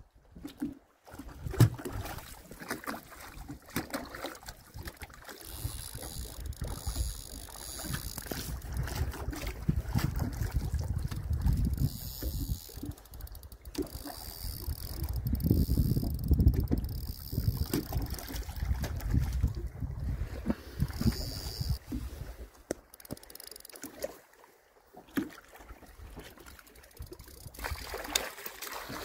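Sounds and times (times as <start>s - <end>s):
water slapping against boat: 0.3s - 29.0s
wind rumbling on microphone: 5.5s - 22.5s.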